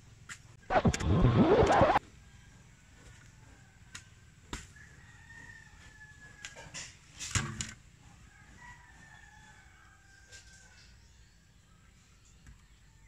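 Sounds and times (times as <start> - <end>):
faint rooster crow: 2.0 - 7.1, 8.0 - 13.0.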